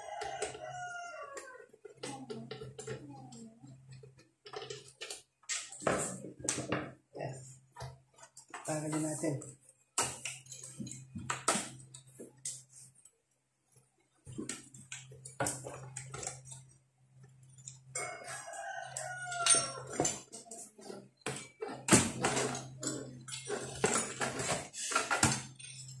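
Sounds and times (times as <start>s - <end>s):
metal parts clicking and clattering: 4.0s - 6.8s, 17.4s - 26.0s.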